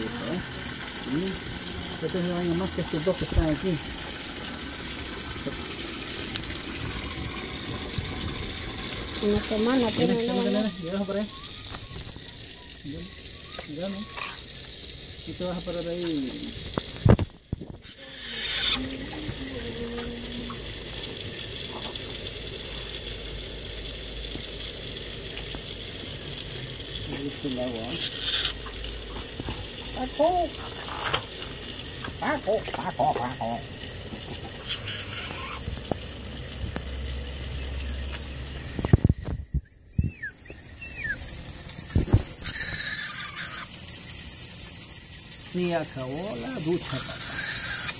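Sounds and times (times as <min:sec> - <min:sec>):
hose water splashing on concrete: 0:00.0 - 0:47.9
parrot squeaking: 0:11.2 - 0:14.4, 0:18.0 - 0:18.9, 0:34.6 - 0:35.7, 0:40.0 - 0:41.3, 0:42.4 - 0:43.7.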